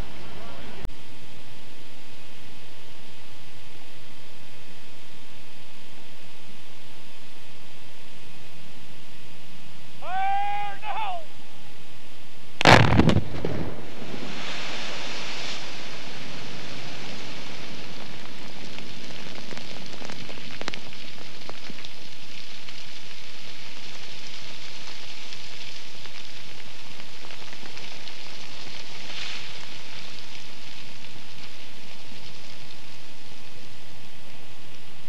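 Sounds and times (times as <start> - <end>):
rain-like hiss: 0.0 - 35.0
rock blast rumbling: 12.6 - 32.6.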